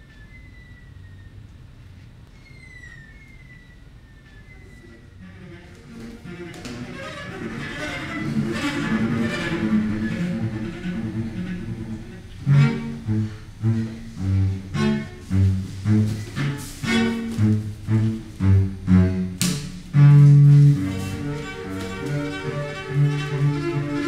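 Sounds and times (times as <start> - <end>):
solo cello playing: 4.8 - 24.0.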